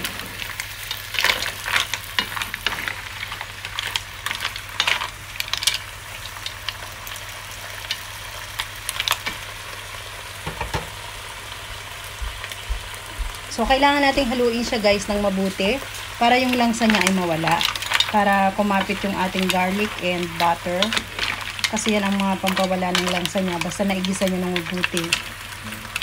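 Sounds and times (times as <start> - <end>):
butter sizzling: 0.0 - 26.0
shells and spatula knocking: 10.4 - 10.9.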